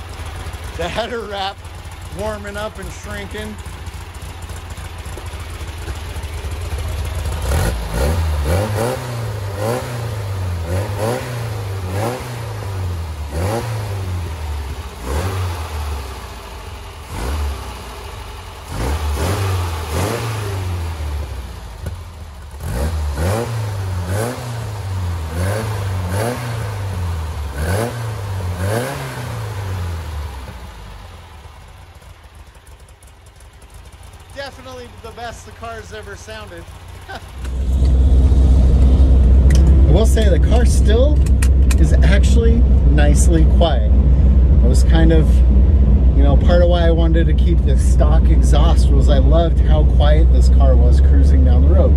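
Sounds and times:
car engine revving: 0:00.0 - 0:51.9.

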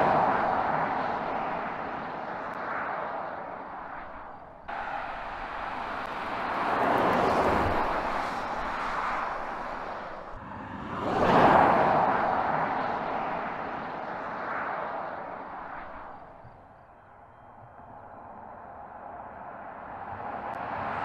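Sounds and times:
car passing with tyre and wind noise: 0:00.0 - 0:21.0.

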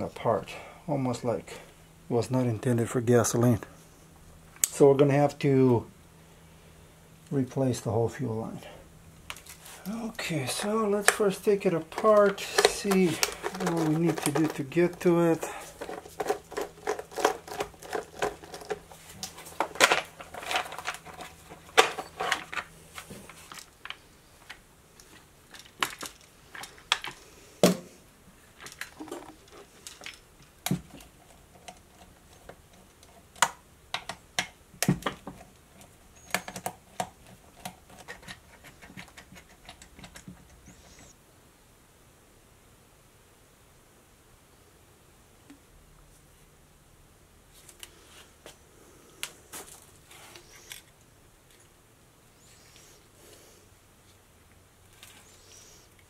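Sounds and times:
plastic parts clicking and knocking: 0:11.0 - 0:27.9, 0:28.6 - 0:40.8.

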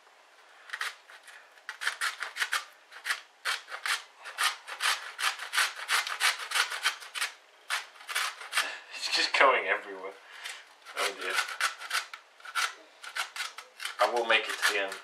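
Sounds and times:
grating on metal grater: 0:00.7 - 0:08.7, 0:10.9 - 0:15.0.

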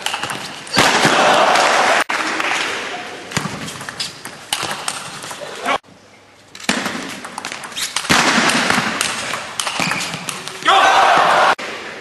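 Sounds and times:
crowd background noise: 0:00.4 - 0:06.7.

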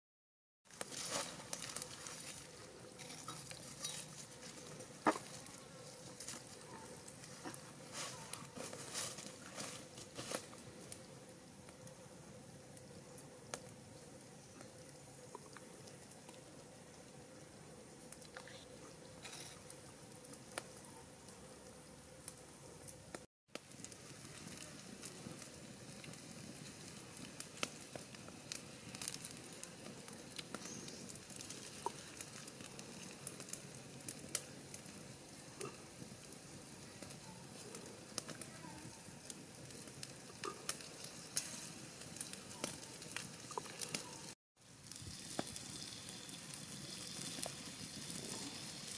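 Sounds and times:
pops and crackles: 0:00.7 - 0:11.0, 0:22.3 - 0:35.0, 0:35.6 - 0:48.9
eels sizzling on hot stone: 0:00.7 - 0:16.9, 0:22.2 - 0:48.9.

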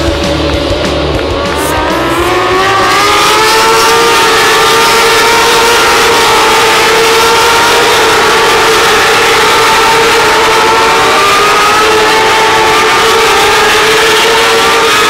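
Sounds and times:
rock music with heavy beat: 0:00.0 - 0:06.6
racing motorcycles accelerating: 0:00.0 - 0:15.0.

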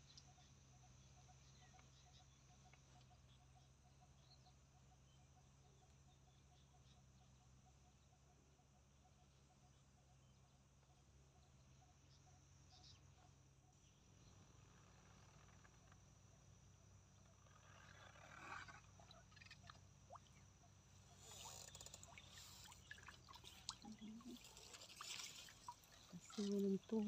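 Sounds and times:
small drips and splashes: 0:19.0 - 0:27.0
water trickling off a net: 0:21.0 - 0:27.0.

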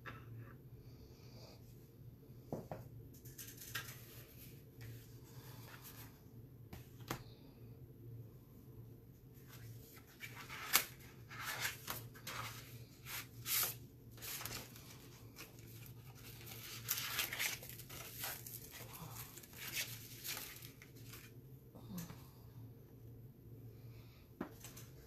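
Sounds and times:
packaging rustling and crinkling: 0:09.9 - 0:21.3.

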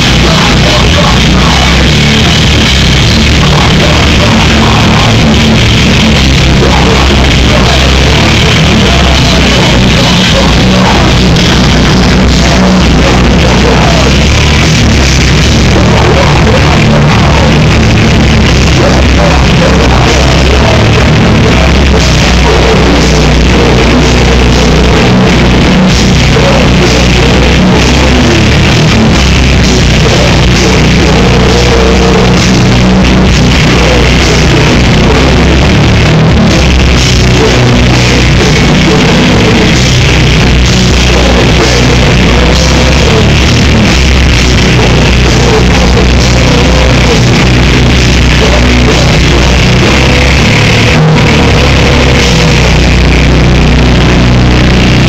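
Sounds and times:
distorted live rock band: 0:00.0 - 0:55.0
drum kit: 0:00.0 - 0:55.0
guitars: 0:00.0 - 0:55.0.

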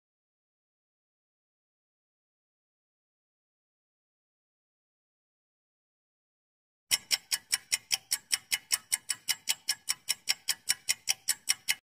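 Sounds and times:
fast clock-like ticks: 0:06.9 - 0:11.9.

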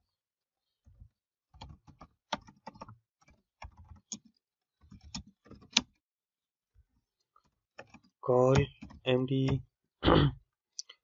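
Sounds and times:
computer keyboard typing: 0:01.6 - 0:05.9, 0:07.8 - 0:09.6.

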